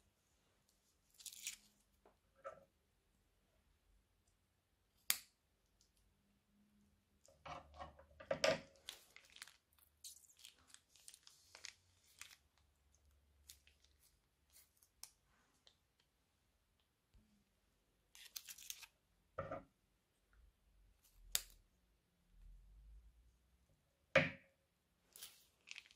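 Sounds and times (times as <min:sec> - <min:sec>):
plastic bag crinkling: 0:08.8 - 0:12.6, 0:25.1 - 0:25.9.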